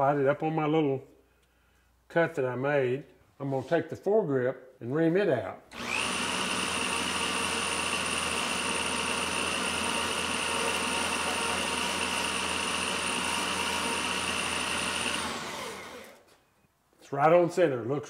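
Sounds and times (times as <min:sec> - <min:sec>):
motor whining: 0:05.7 - 0:16.3.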